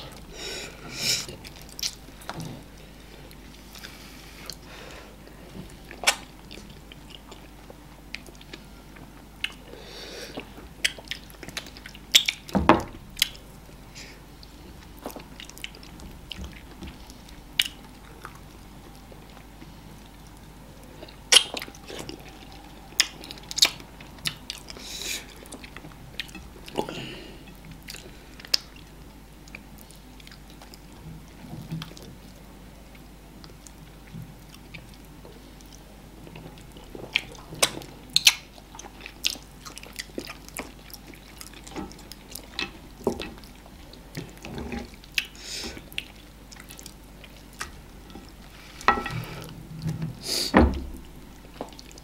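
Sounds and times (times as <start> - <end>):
wet lip smacks and chewing: 5.9 - 9.7, 10.3 - 12.5, 21.0 - 26.8, 37.1 - 42.5.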